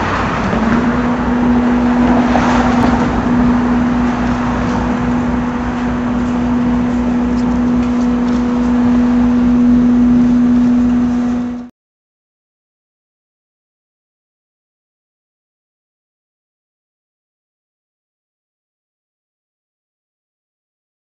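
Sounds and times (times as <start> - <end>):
low motor hum: 0.0 - 11.7
street traffic: 0.0 - 11.7.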